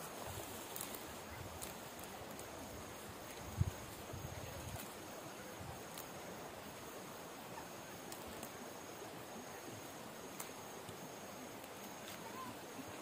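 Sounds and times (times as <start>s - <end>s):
hands picking leafy greens: 0.0s - 4.0s
faint outdoor hiss: 0.0s - 13.0s.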